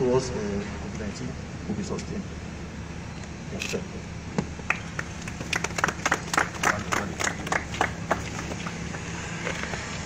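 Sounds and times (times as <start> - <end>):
people clapping: 4.6 - 8.9.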